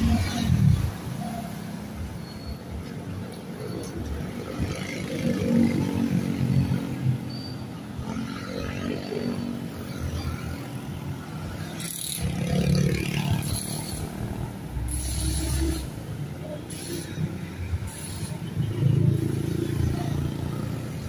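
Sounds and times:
traffic engines passing: 0:00.0 - 0:21.0
motorcycle passing close: 0:11.8 - 0:14.0.

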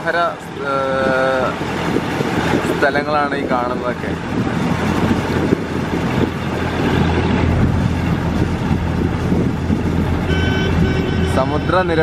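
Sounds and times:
boat engine droning: 0:00.0 - 0:12.0
wind on microphone: 0:00.0 - 0:12.0.

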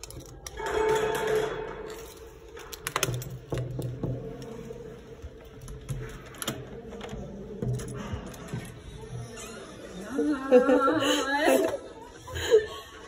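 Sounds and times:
metal door lock rattling: 0:00.0 - 0:04.6.

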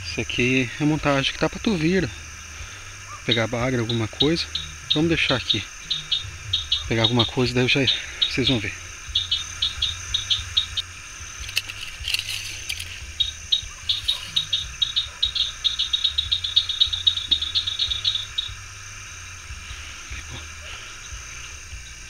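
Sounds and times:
cricket chirps: 0:00.0 - 0:22.0
high insect drone: 0:00.0 - 0:22.0
brief rustle: 0:11.4 - 0:13.0.

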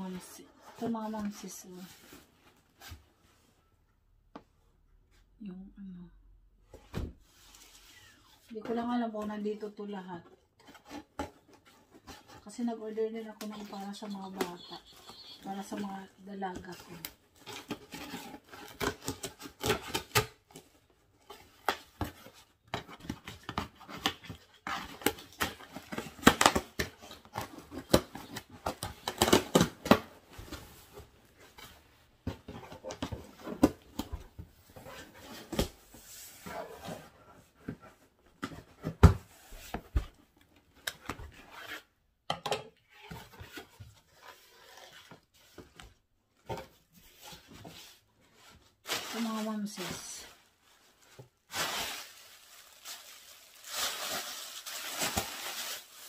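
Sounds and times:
plastic packaging rustling: 0:48.4 - 0:56.0
tape crackling: 0:51.5 - 0:56.0.

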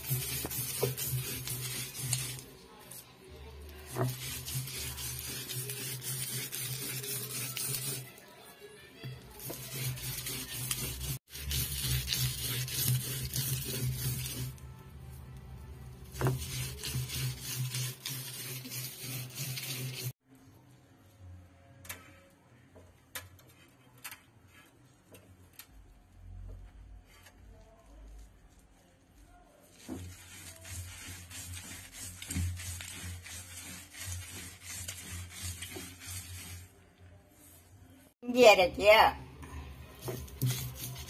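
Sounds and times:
stone grinding wet paste: 0:00.0 - 0:03.0, 0:03.6 - 0:08.2, 0:09.1 - 0:14.6, 0:16.1 - 0:20.2, 0:30.0 - 0:36.7, 0:40.0 - 0:41.0.

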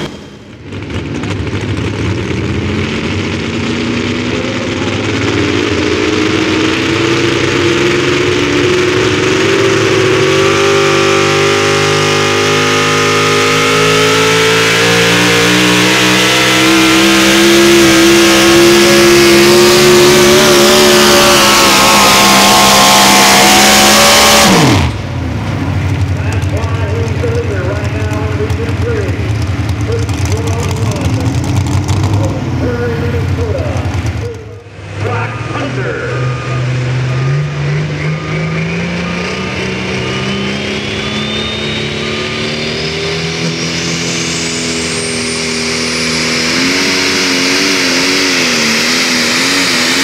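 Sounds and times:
engine at full throttle: 0:00.0 - 0:50.0
steady noise: 0:13.2 - 0:42.2.

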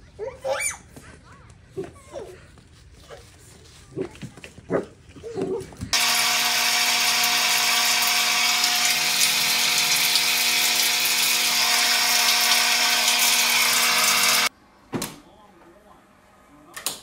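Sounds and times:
showerhead spraying water: 0:06.0 - 0:14.5.

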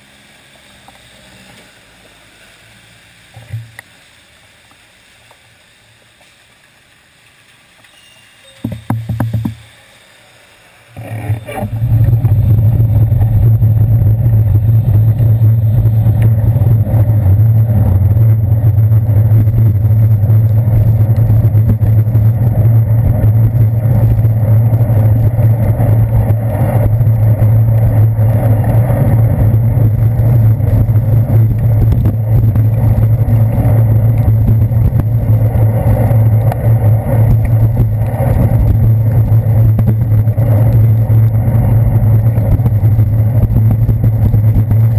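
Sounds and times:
low rumble and wind buffeting: 0:11.0 - 0:44.9.

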